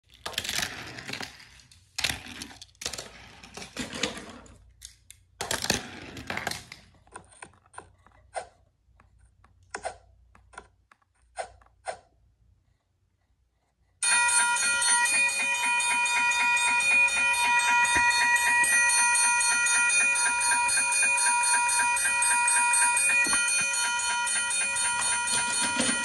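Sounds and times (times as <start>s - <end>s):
toys clattering on wooden floor: 0.0s - 8.2s, 22.8s - 26.0s.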